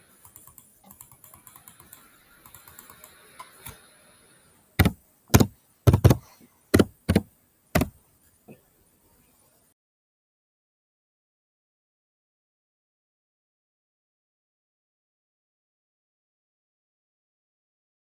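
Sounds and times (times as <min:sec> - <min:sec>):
computer keyboard typing: 0:00.2 - 0:03.8, 0:04.8 - 0:06.2, 0:06.8 - 0:07.2.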